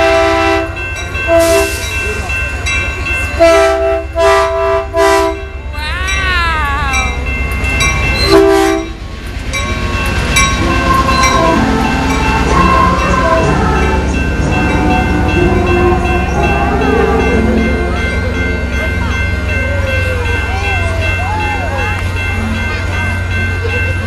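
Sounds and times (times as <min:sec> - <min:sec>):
locomotive air horn blasts: 0:00.0 - 0:01.9, 0:03.4 - 0:05.5, 0:08.3 - 0:09.0
train cars rumbling: 0:00.0 - 0:24.0.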